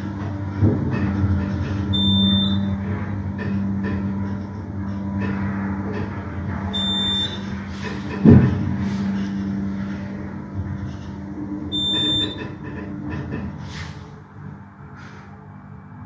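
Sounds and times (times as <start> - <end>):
elevator humming: 0.0 - 16.0
short high electronic beep: 2.0 - 2.7, 11.8 - 12.4.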